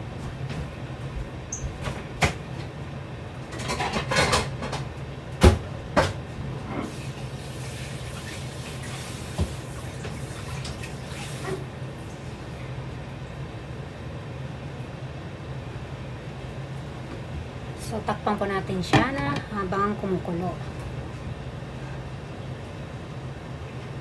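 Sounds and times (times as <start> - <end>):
steady low hum: 9.8 - 24.0.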